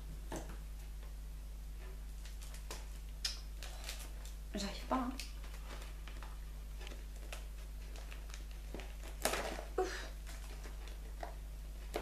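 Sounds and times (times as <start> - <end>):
paper crinkle: 2.1 - 12.0
gift wrapping rustling: 2.2 - 12.0.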